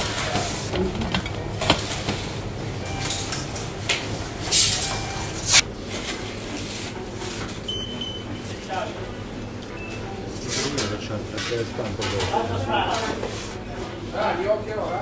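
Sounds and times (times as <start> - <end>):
dishes and utensils clattering: 0.0 - 5.6, 10.4 - 13.3.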